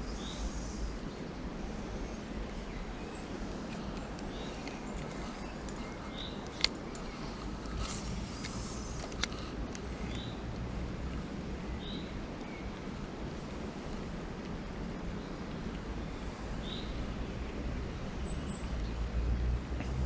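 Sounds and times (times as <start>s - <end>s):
short hiss: 7.7s - 9.6s.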